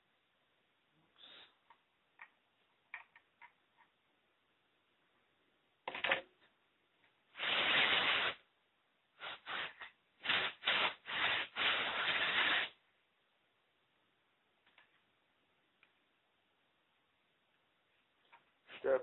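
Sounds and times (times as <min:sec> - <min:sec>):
compressed air hissing bursts: 0:07.4 - 0:08.4, 0:09.2 - 0:12.8.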